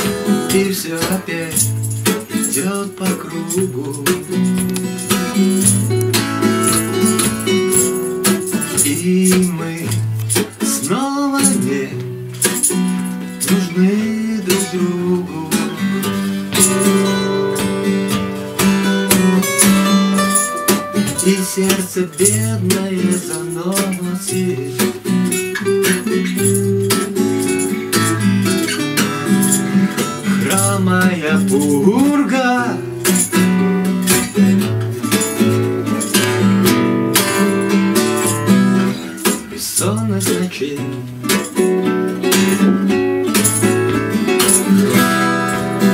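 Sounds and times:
man singing: 0:00.0 - 0:05.7, 0:07.0 - 0:17.3, 0:20.9 - 0:25.4, 0:29.9 - 0:33.6, 0:38.3 - 0:41.7
acoustic guitars strummed: 0:00.0 - 0:45.9.

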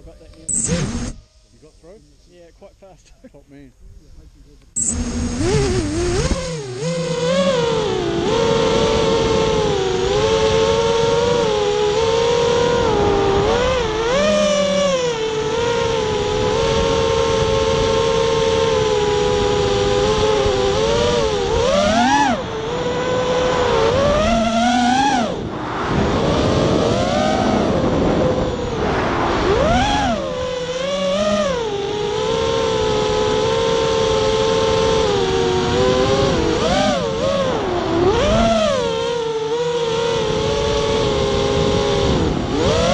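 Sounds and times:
quadcopter motors whining: 0:00.0 - 0:42.9
rushing noise: 0:25.4 - 0:30.3.

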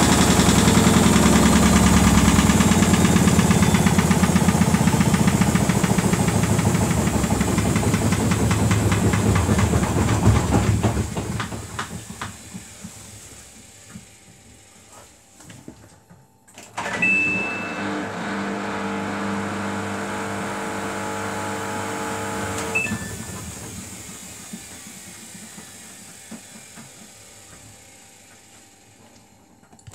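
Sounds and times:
washing machine motor hum: 0:00.0 - 0:29.9
brief high tone: 0:16.9 - 0:17.8.

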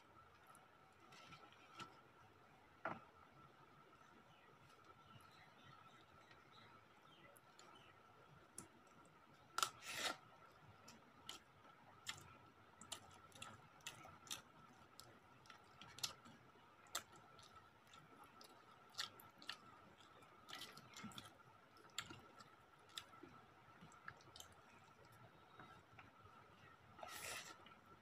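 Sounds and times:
chewing and mouth smacks: 0:11.2 - 0:25.2.

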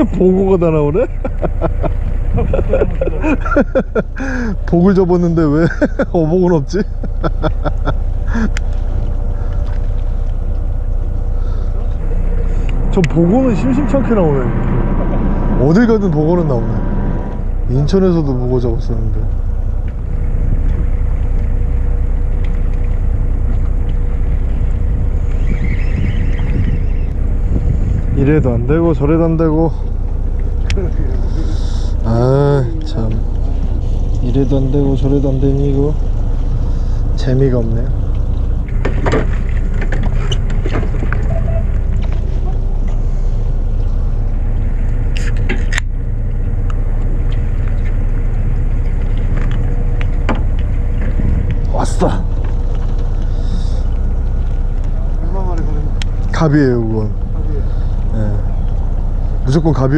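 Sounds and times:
boat engine rumble: 0:00.0 - 0:59.9
faint steady hum: 0:00.0 - 0:59.9
wind on microphone: 0:22.6 - 0:28.9, 0:47.2 - 0:55.0.

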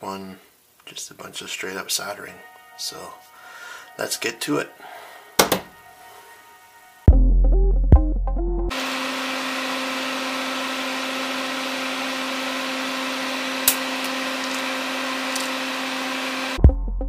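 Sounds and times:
flush cutters snipping: 0:13.5 - 0:16.2.

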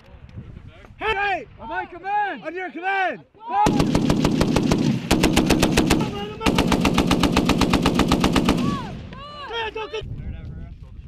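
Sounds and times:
machine gun firing bursts: 0:03.7 - 0:09.0.

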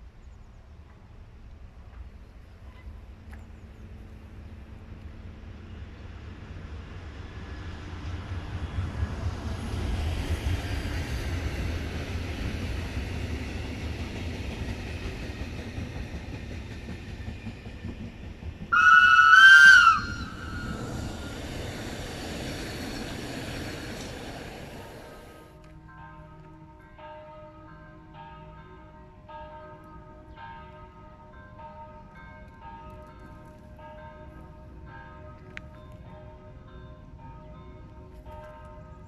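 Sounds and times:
train rumble: 0:00.0 - 0:27.4
train horn blast: 0:18.7 - 0:20.9.

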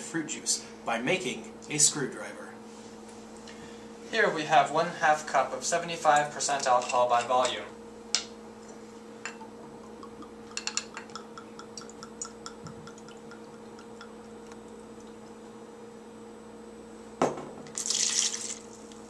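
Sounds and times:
faint steady hum: 0:00.0 - 0:19.0
liquid splashing into a pitcher: 0:17.7 - 0:18.8.

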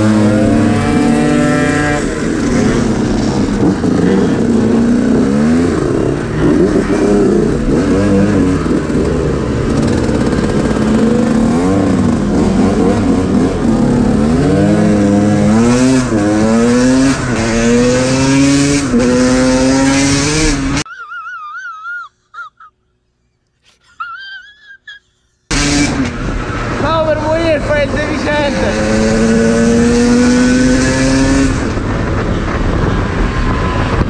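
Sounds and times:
two-stroke moped engine: 0:00.0 - 0:16.4.

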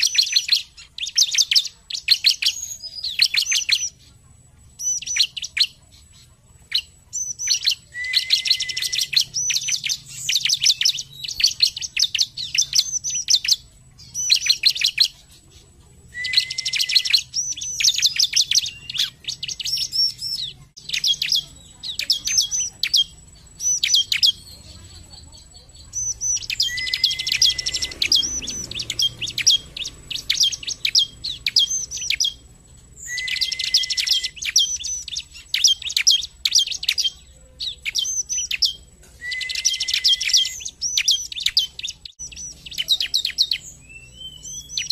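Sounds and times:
bird high rapid chirping: 0:00.0 - 0:44.9.

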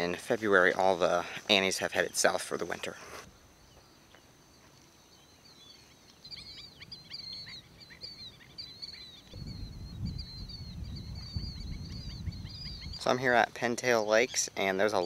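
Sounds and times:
birds chirping: 0:00.0 - 0:15.0
wind rumbling on microphone: 0:06.3 - 0:13.6.

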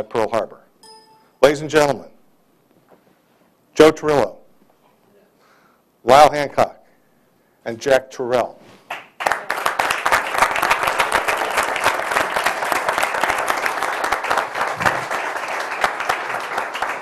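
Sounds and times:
audience applauding: 0:08.9 - 0:17.0.

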